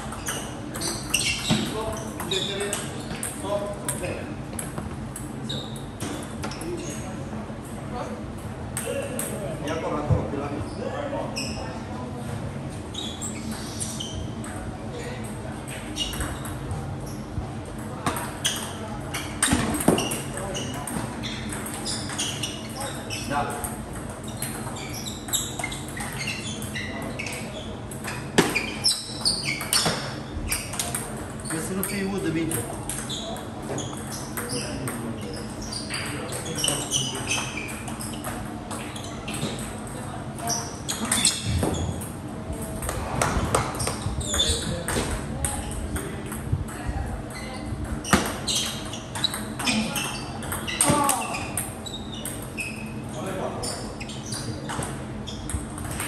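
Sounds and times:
short high squeaks: 0.1 - 3.3, 5.4 - 7.1, 12.9 - 14.6, 15.7 - 17.2, 18.4 - 23.6, 24.2 - 32.0, 32.9 - 42.1, 43.7 - 44.8, 47.3 - 55.6.

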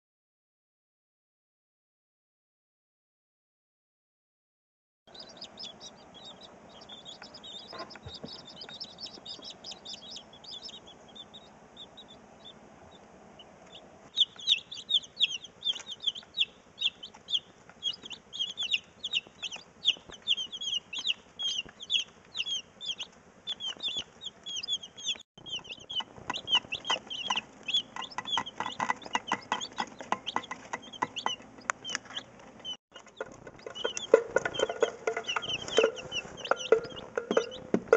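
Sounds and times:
hens clucking and calling: 5.2 - 37.9.

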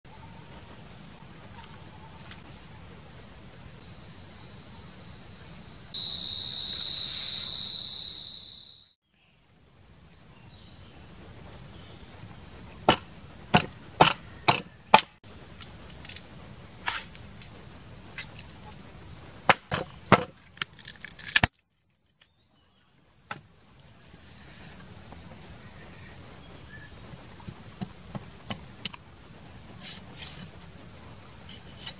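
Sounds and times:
insects buzzing: 0.1 - 9.0, 9.8 - 21.4, 22.3 - 31.9
bamboo cracking as it splits: 19.5 - 21.7.

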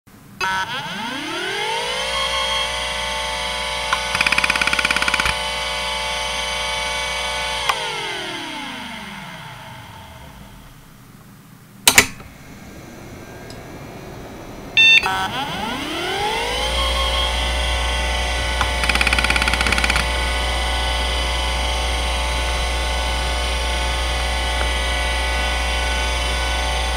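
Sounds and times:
hard drive spinning whine: 0.2 - 26.9
hard drive head seek ticking: 3.9 - 5.6, 17.5 - 26.9
sharp loud click: 11.9 - 12.3.

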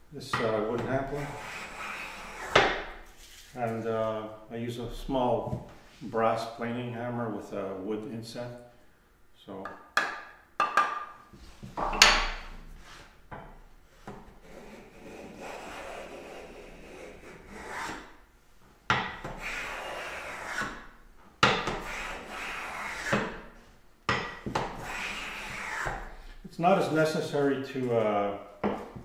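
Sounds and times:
hand plane rasping on wood: 1.1 - 2.7, 14.4 - 18.0, 19.2 - 20.8, 21.6 - 23.4, 24.6 - 26.1.

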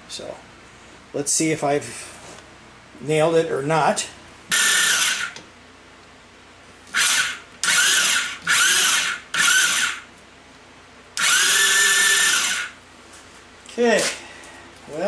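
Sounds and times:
starter motor cranking whine: 4.5 - 5.4, 6.9 - 10.1, 11.2 - 12.8.

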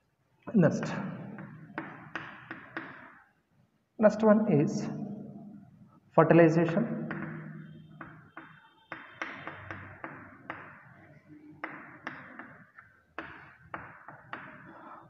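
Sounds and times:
chalk tapping on chalkboard: 1.3 - 3.2, 7.1 - 15.0.

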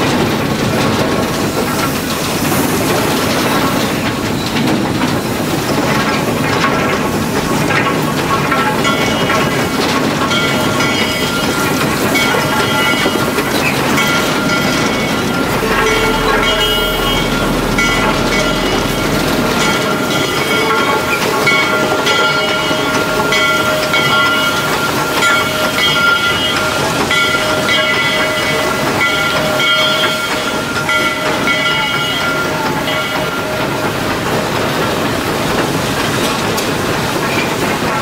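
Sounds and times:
engine rattle: 0.0 - 38.0
high metallic ringing: 8.5 - 33.9
steady high tone: 10.3 - 25.8.

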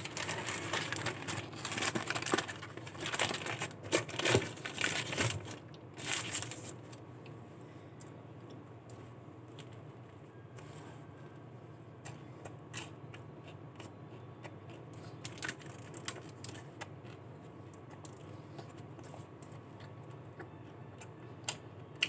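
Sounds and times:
wrapper crinkling and rustling: 0.0 - 7.0.

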